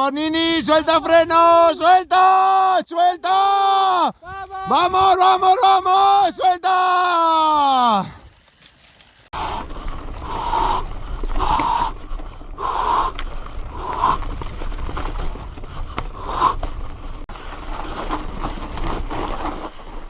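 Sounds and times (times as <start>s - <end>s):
wind: 0.0s - 20.0s
tyres rumbling on trail: 7.4s - 20.0s
rider breathing heavily: 9.3s - 18.2s.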